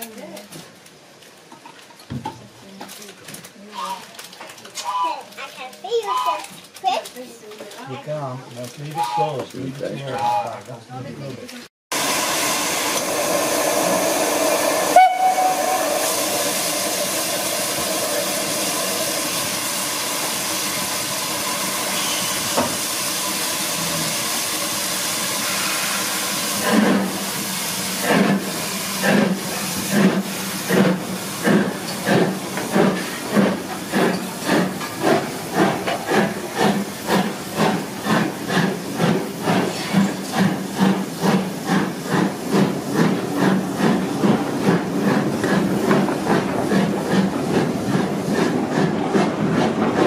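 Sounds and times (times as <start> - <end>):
steam locomotive hissing: 11.9 - 50.0
steam whistle: 13.7 - 16.4, 21.8 - 22.7, 25.4 - 26.4.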